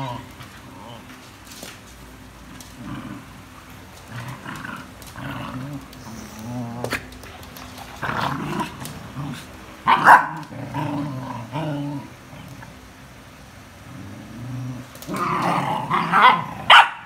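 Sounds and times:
puppies growling: 0.0 - 16.8
puppies barking: 9.8 - 10.5, 15.9 - 17.0.

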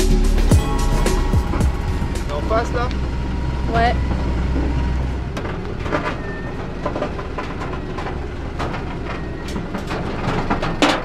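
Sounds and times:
tow truck engine running: 0.0 - 11.0.

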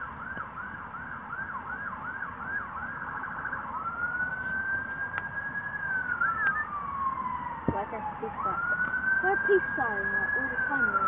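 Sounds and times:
emergency vehicle siren: 0.0 - 11.0.

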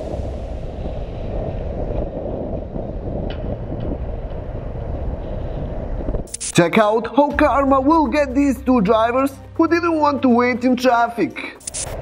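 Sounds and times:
wind rumble on microphone: 0.0 - 6.3.

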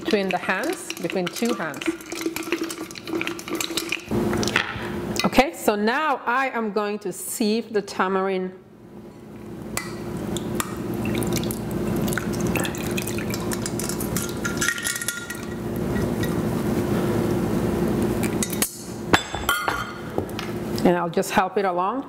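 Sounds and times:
liquid pouring through sieve: 0.0 - 4.1, 11.0 - 15.4.

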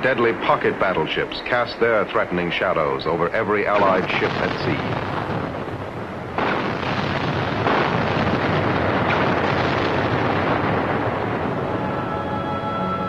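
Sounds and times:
naval gunfire and explosions: 3.0 - 12.1.

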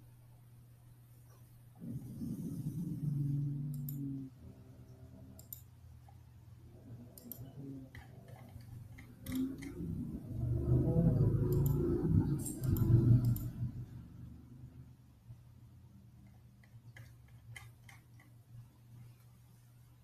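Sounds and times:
low pitched hum: 0.0 - 20.0
computer mouse clicks: 3.7 - 4.2, 5.3 - 6.2, 6.9 - 13.8, 16.2 - 18.4.

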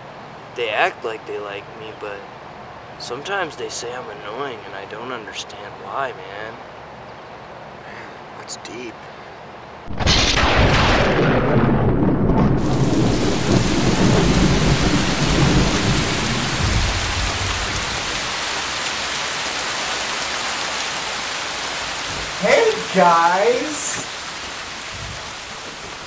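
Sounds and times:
thunder clap rumbling: 9.9 - 18.2
steady rain: 9.9 - 26.0.

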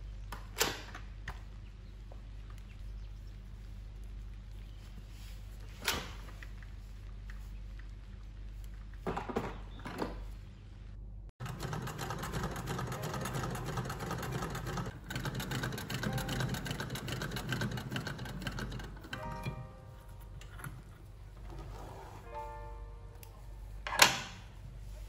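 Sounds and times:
sewing machine running fast: 11.4 - 19.1.

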